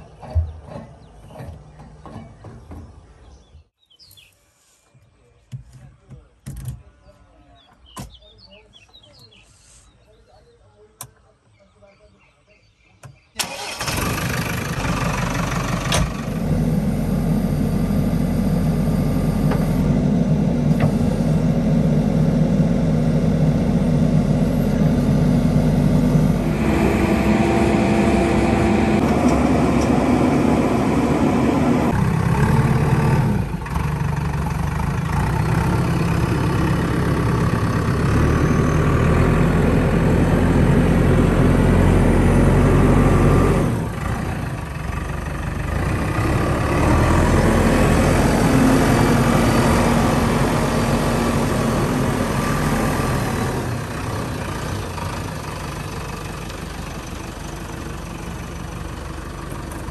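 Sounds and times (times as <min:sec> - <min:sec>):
diesel engine starting and running: 0:00.0 - 0:03.8, 0:13.2 - 0:59.9.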